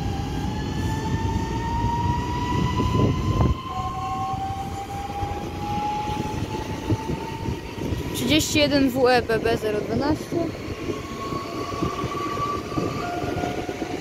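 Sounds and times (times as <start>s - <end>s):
train low rumble: 0.0s - 14.0s
traction motor whine: 9.3s - 14.0s.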